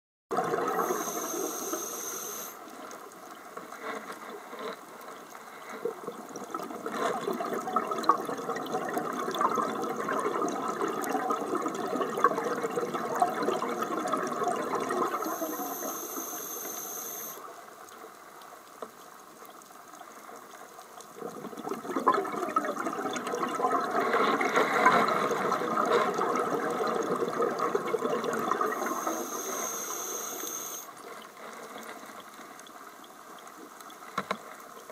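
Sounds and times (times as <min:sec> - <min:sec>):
exhaled bubbles rushing: 0:00.3 - 0:01.8, 0:05.9 - 0:16.0, 0:21.2 - 0:29.8
diver inhaling through regulator: 0:00.7 - 0:02.6, 0:15.1 - 0:17.4, 0:28.7 - 0:30.9.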